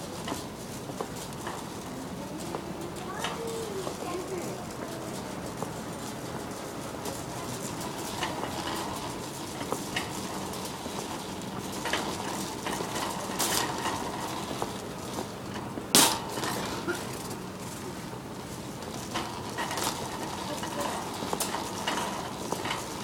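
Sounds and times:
shopping cart rattling: 0.0 - 23.0
store background noise: 0.0 - 23.0
sharp clack: 15.9 - 17.0.

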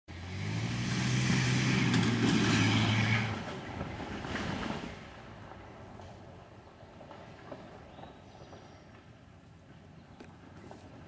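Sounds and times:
vehicle driving past: 0.1 - 6.1.

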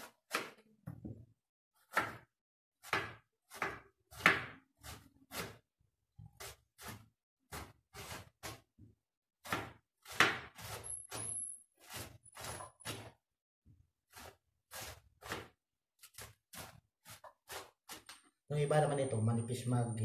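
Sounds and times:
knife cutting on a cutting board: 1.8 - 5.7, 6.3 - 8.7, 9.4 - 13.2, 14.0 - 18.2.

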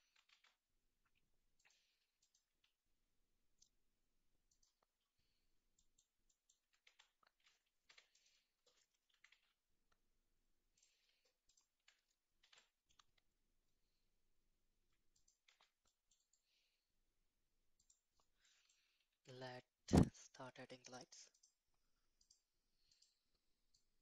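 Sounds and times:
computer mouse clicking: 0.1 - 0.6, 1.6 - 2.7, 4.5 - 4.9, 5.7 - 9.6, 15.1 - 16.6, 17.8 - 18.8, 22.2 - 23.8.

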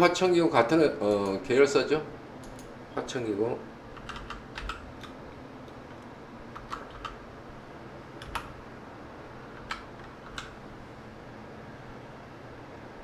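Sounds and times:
faint room hiss: 0.0 - 13.0
keyboard keystrokes: 4.0 - 5.2, 8.2 - 8.5.

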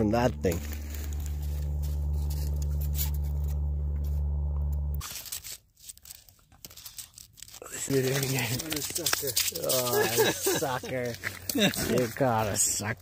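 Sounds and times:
steady low hum: 0.0 - 5.0
faint clicks and crunches: 4.7 - 12.6.

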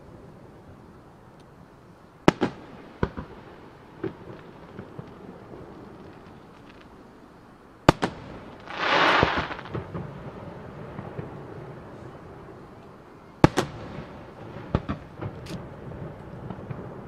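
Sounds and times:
firework shells bursting: 7.9 - 10.2
loud rushing hiss: 8.0 - 10.0.

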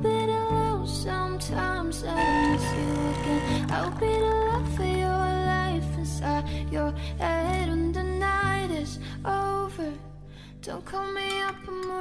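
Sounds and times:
gentle sliding melody: 2.2 - 5.1.

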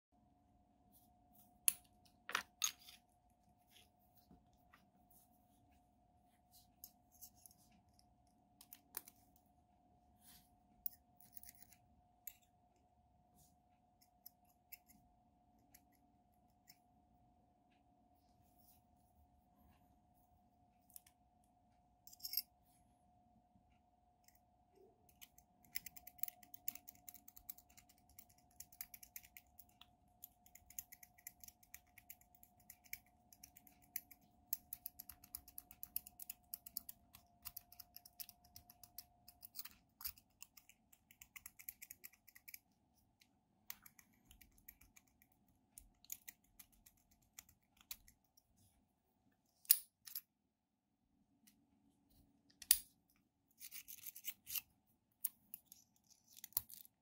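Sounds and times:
lock pick clicking and scraping: 25.1 - 42.6, 53.6 - 56.9.

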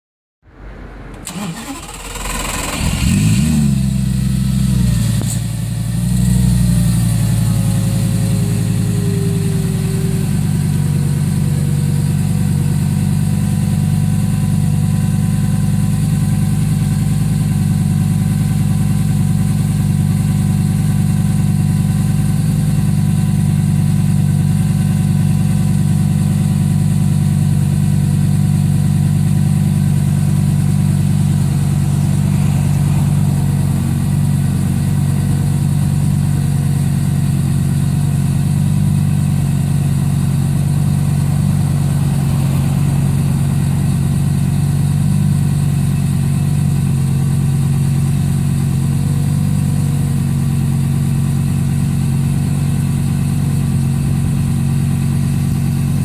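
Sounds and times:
car engine starting and revving: 0.5 - 21.1, 26.8 - 49.0.

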